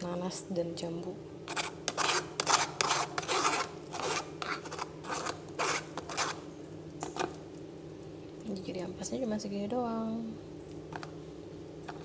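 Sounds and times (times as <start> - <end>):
spoon scraping on wire strainer: 1.5 - 6.4.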